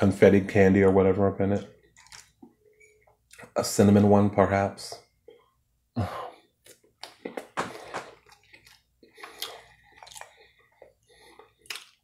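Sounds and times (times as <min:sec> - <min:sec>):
chewing and wet mouth smacks: 0:06.6 - 0:12.0.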